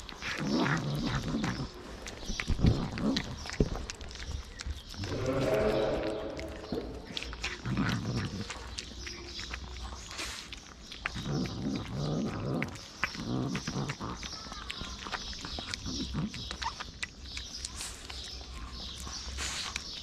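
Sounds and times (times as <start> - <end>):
kittens chewing wet food: 0.0 - 20.0
low muffled vocal sounds: 5.0 - 8.1.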